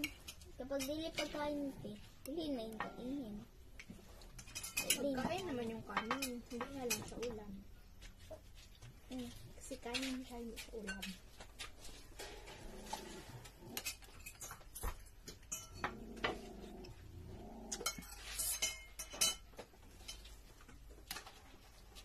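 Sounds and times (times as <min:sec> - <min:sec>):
cutlery clinking on plates: 0:04.3 - 0:07.3, 0:13.8 - 0:16.4, 0:17.7 - 0:20.3.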